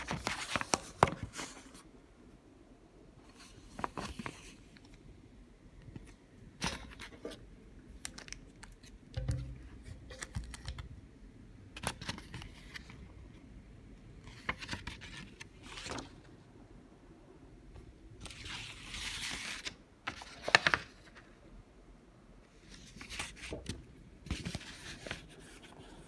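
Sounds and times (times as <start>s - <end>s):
paper booklet rustling: 0.0s - 1.9s, 3.2s - 5.0s, 5.9s - 10.9s, 11.8s - 13.1s, 14.2s - 16.4s, 18.2s - 21.3s, 22.6s - 26.0s.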